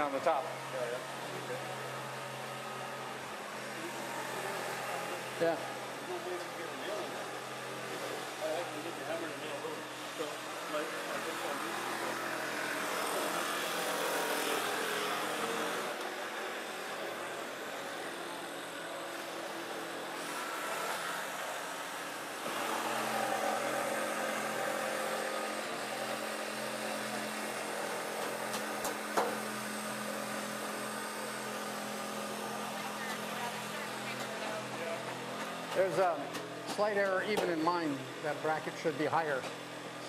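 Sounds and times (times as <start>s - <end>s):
jigsaw cutting wood: 0.0s - 38.9s
mechanical hum and clatter: 0.0s - 40.0s.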